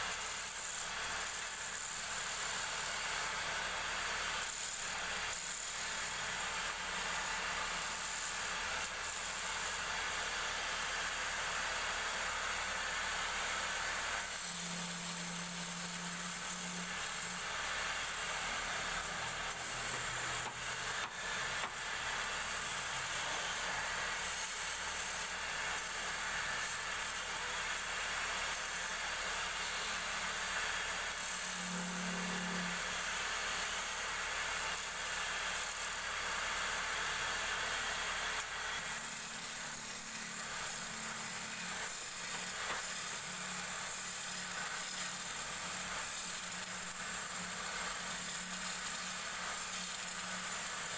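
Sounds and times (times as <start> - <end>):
chisel scraping spinning wood: 14.4 - 27.0.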